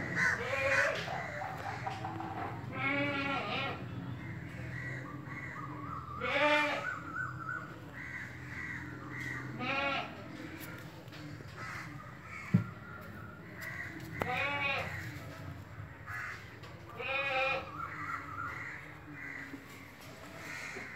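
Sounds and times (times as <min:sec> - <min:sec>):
wavering animal bleats: 0:02.6 - 0:04.0, 0:06.1 - 0:07.0, 0:09.4 - 0:10.3, 0:14.1 - 0:15.2, 0:16.9 - 0:18.0.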